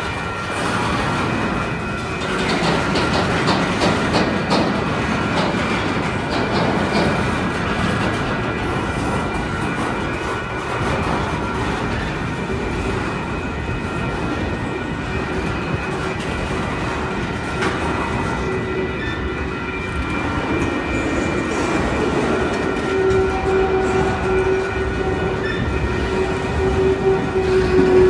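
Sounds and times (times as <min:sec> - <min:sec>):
train wheels rumbling on rail: 0:00.0 - 0:28.0
lower squeal tone: 0:16.7 - 0:28.0.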